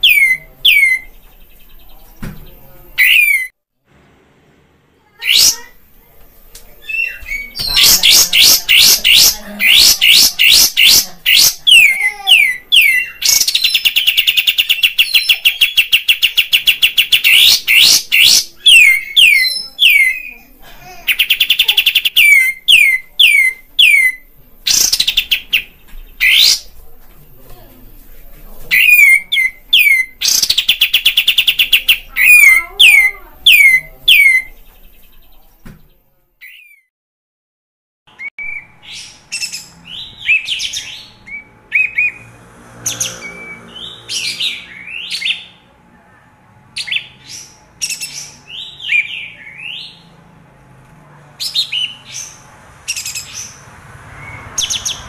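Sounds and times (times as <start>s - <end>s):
bird singing with trills: 0.0s - 3.5s, 6.8s - 20.5s, 21.1s - 26.7s, 28.7s - 35.4s.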